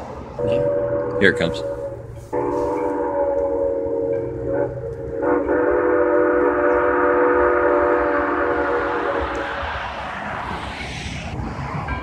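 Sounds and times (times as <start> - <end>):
steam locomotive whistle: 0.4 - 10.0.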